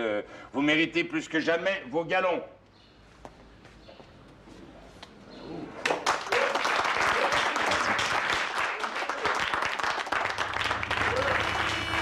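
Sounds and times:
crowd applauding: 0:05.8 - 0:12.0.

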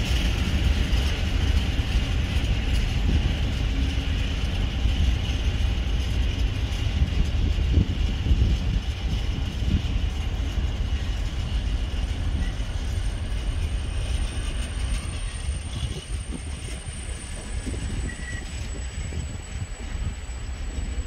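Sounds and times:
train wheels rumbling: 0:00.0 - 0:21.0
faint wheel squeal: 0:12.0 - 0:21.0.

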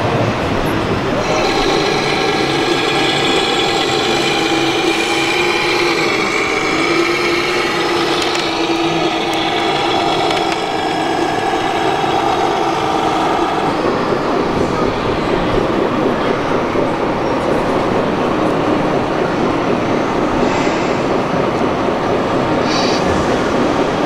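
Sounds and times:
model truck motor droning: 0:00.9 - 0:20.4.

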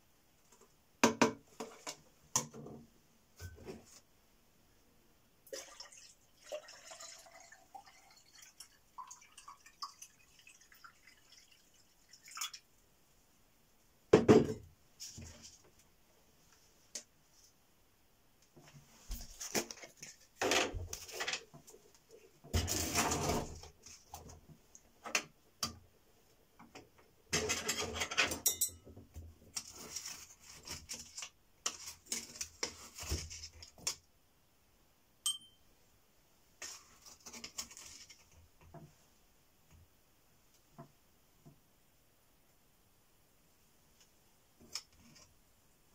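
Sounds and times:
light metallic clink: 0:35.2 - 0:35.6.

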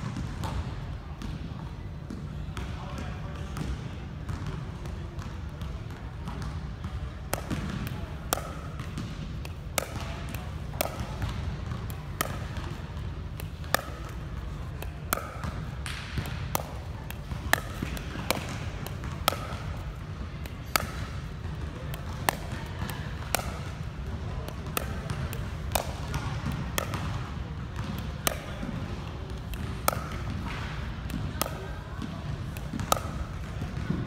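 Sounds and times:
steady low hum: 0:05.4 - 0:34.0
ball bouncing on hard floor: 0:06.3 - 0:28.9, 0:29.5 - 0:34.0
paddle striking ball: 0:14.8 - 0:21.3, 0:29.4 - 0:34.0.

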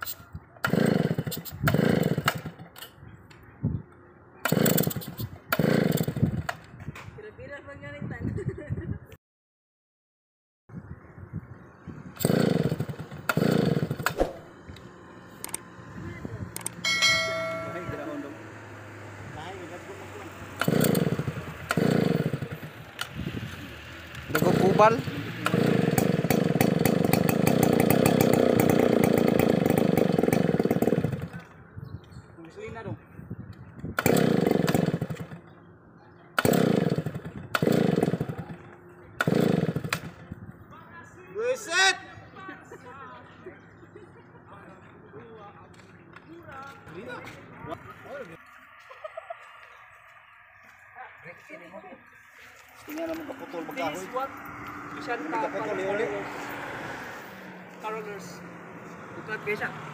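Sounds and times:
chainsaw starter cord cranking: 0:00.6 - 0:02.9, 0:04.5 - 0:06.5, 0:12.2 - 0:14.2, 0:20.6 - 0:23.2, 0:24.3 - 0:31.5, 0:34.0 - 0:35.4, 0:36.4 - 0:38.5, 0:39.2 - 0:40.1
sharp click: 0:14.0 - 0:14.4
high-pitched tone: 0:16.8 - 0:18.8.

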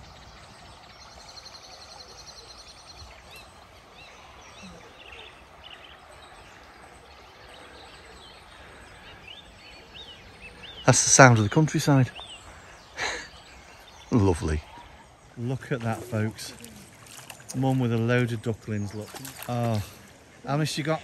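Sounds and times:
small birds singing: 0:00.0 - 0:21.0.

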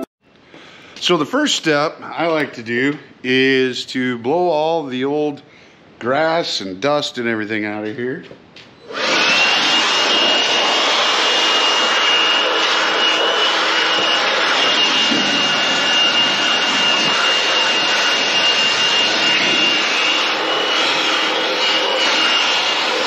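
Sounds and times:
leaf blower running: 0:08.8 - 0:23.0.

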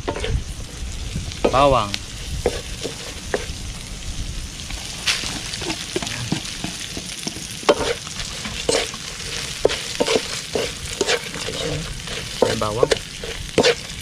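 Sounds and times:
spatula scraping metal wok: 0:00.0 - 0:00.4, 0:02.2 - 0:03.5, 0:05.2 - 0:14.0
food sizzling: 0:00.0 - 0:14.0.

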